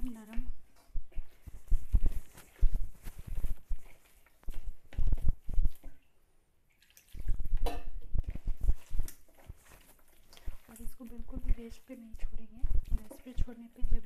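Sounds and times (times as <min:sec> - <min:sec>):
hand mixing wet batter: 0:00.0 - 0:14.0
water pouring: 0:06.7 - 0:11.8.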